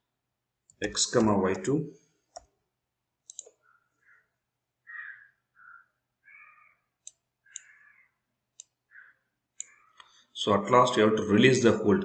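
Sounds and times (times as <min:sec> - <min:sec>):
computer mouse clicking: 0:03.2 - 0:03.6, 0:07.0 - 0:07.8, 0:08.6 - 0:08.8, 0:09.6 - 0:10.2.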